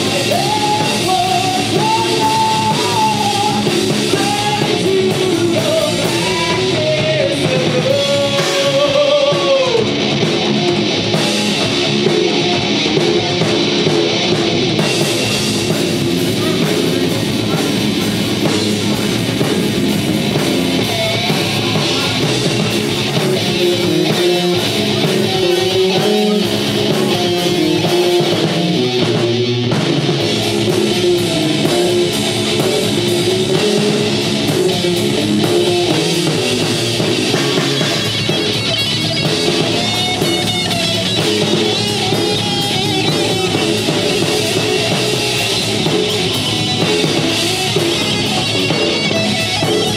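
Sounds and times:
bass guitar: 0.0s - 49.9s
distorted electric guitar: 0.0s - 49.9s
drum kit: 0.0s - 49.9s.

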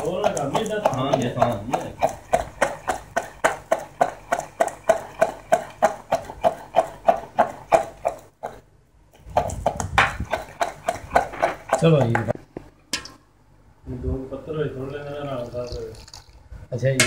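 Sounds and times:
pestle pounding in stone mortar: 0.0s - 12.4s.

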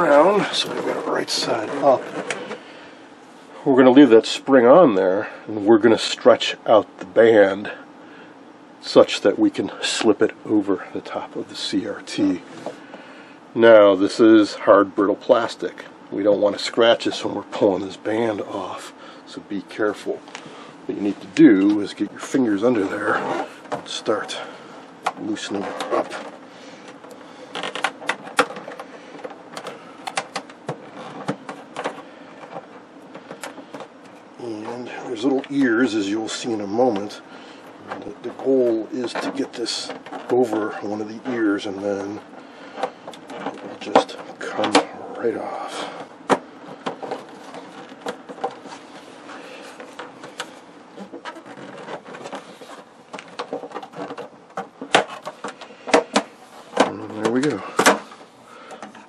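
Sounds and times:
plastic scraping and rubbing: 0.0s - 2.8s, 20.2s - 59.0s.

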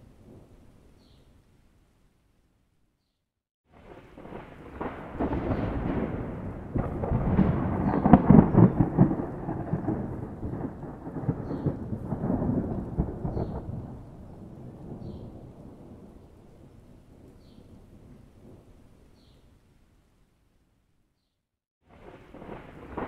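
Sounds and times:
thunder rumble: 3.7s - 18.8s, 21.9s - 23.0s
sharp thunder cracks: 3.8s - 16.2s, 21.9s - 23.0s.

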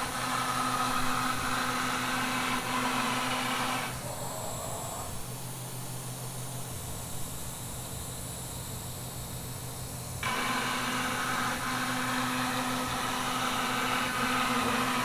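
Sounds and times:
router spindle cutting wood: 0.0s - 4.0s, 10.2s - 15.0s.

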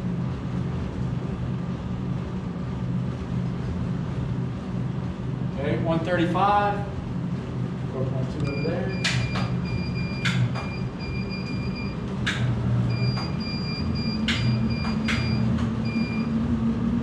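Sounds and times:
treadmill motor hum: 0.0s - 17.0s
faint high motor whine: 5.0s - 17.0s.

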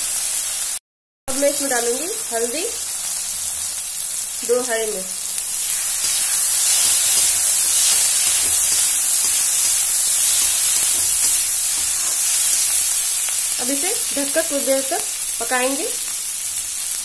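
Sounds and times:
food sizzling in hot oil: 0.0s - 17.0s
metal spoon stirring in pan: 5.3s - 14.8s.

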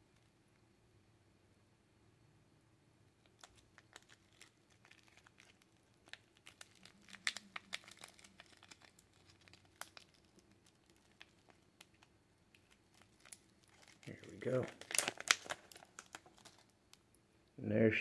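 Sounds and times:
plastic wrap crinkling: 3.2s - 17.1s.

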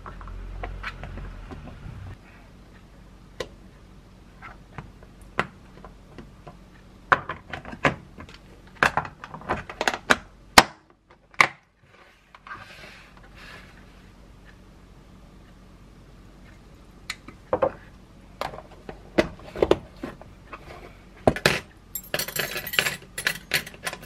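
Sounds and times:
soft scraping: 11.9s - 14.2s.

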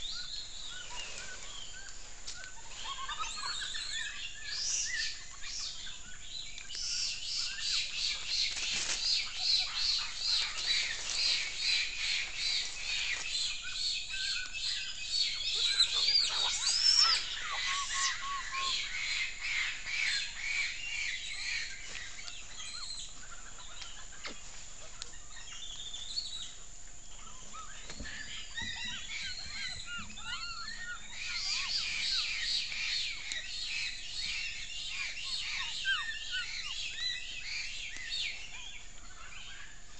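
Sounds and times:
lower chirps: 0.0s - 23.8s
whistled animal calls: 13.6s - 19.3s.

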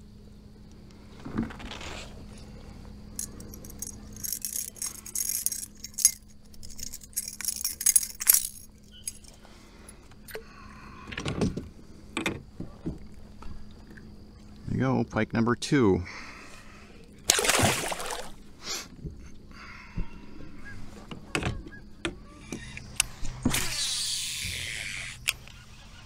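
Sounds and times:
fishing lure clinking and jingling: 3.2s - 9.4s.

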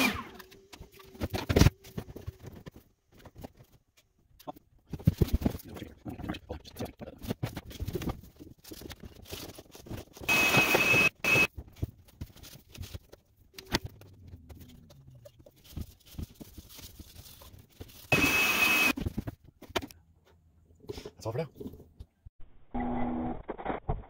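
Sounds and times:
shop vacuum whining: 0.0s - 0.6s, 10.3s - 11.5s, 18.1s - 19.0s.

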